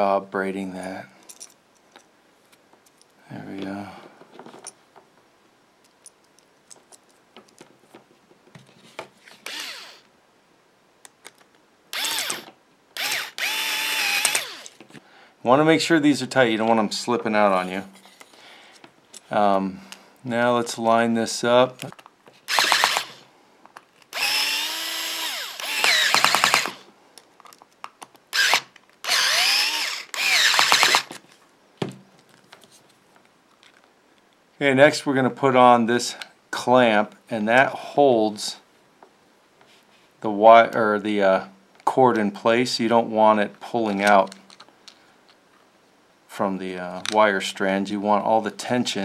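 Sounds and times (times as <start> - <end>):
cordless screwdriver whirring: 9.3 - 10.1, 11.9 - 14.8, 22.5 - 23.2, 24.1 - 26.8, 28.3 - 31.2.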